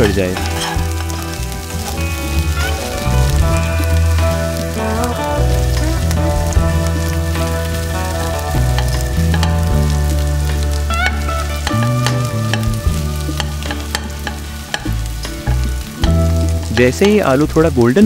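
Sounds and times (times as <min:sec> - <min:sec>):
background music with low notes: 0:00.0 - 0:18.0
potatoes sizzling in hot oil: 0:00.0 - 0:18.0
spatula scraping a wok: 0:00.4 - 0:03.7
spatula clicking against pan: 0:13.4 - 0:17.4.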